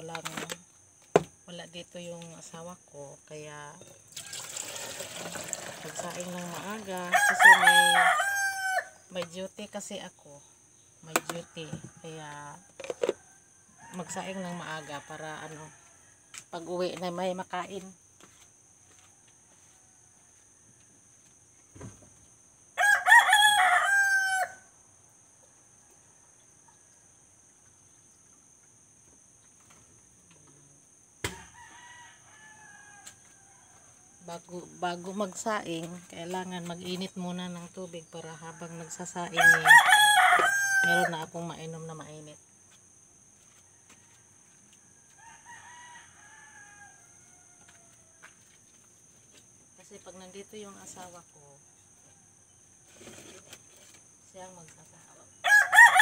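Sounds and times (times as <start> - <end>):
rooster crowing: 7.0 - 9.0, 22.8 - 24.7, 31.3 - 34.2, 38.4 - 41.3, 43.6 - 48.5, 55.4 - 56.0.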